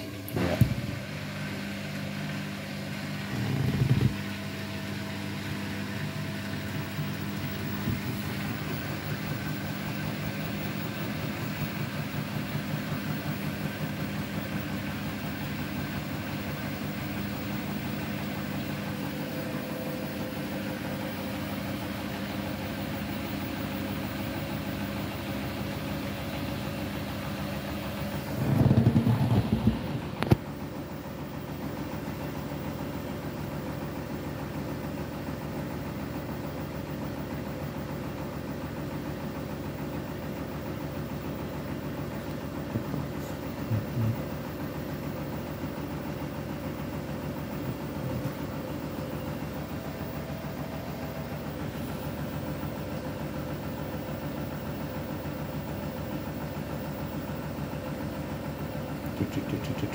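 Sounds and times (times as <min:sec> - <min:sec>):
washing machine rumbling and thumping: 0:00.0 - 0:59.9
washing machine drum turning: 0:27.2 - 0:30.8, 0:58.8 - 0:59.9.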